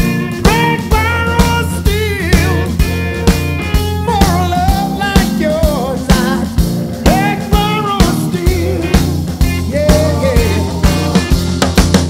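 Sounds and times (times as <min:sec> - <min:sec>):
bending melodic lead line: 0:00.0 - 0:12.0
rock music with drum beat: 0:00.0 - 0:12.0.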